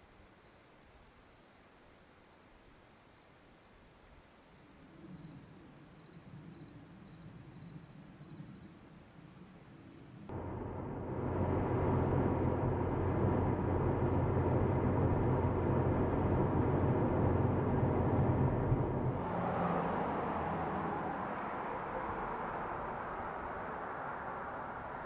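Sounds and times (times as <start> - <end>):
soft outdoor hiss: 0.0 - 10.3
car engine and road hum: 10.1 - 25.0.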